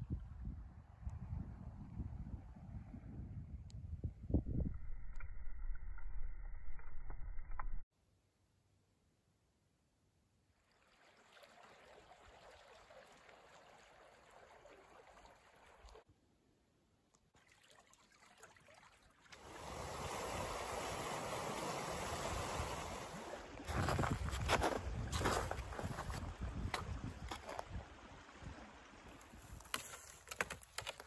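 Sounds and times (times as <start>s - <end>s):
creek water running over rocks: 10.6s - 16.1s, 17.4s - 31.0s.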